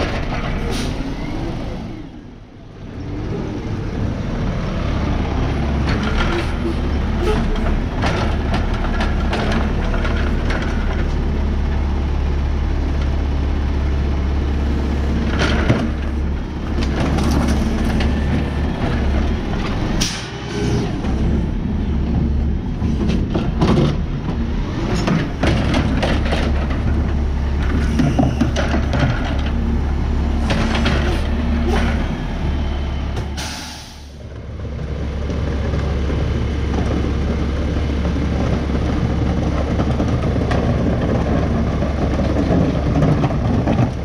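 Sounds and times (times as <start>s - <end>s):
garbage truck engine rumbling: 0.0s - 44.0s
clunks and bangs of trash cart: 15.2s - 32.4s.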